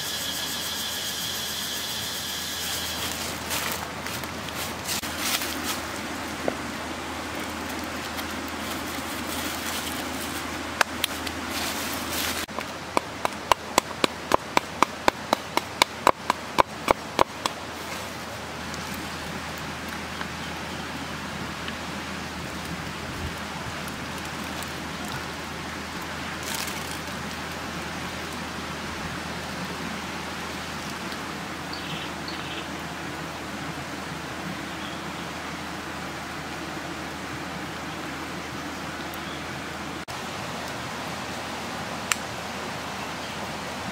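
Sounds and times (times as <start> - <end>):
steady hiss: 0.0 - 43.9
cleaver chopping on wooden board: 12.5 - 17.6.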